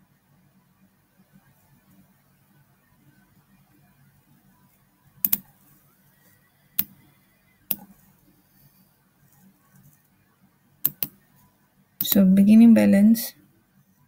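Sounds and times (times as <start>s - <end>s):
faint low hum: 0.0s - 14.0s
computer mouse clicks: 5.2s - 5.5s, 6.8s - 7.1s, 7.7s - 8.1s, 10.8s - 11.2s.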